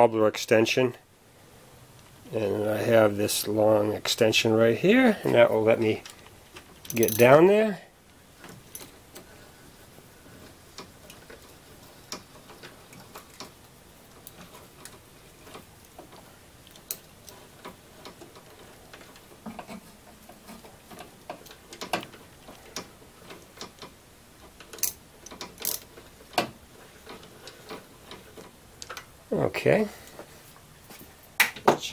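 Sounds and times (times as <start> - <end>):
metal clinks: 6.8 - 7.3
ratchet clicking: 24.6 - 26.5.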